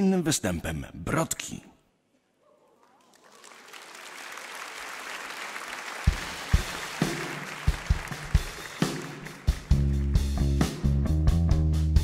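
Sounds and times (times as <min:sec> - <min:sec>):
large audience applauding: 0:02.8 - 0:10.6.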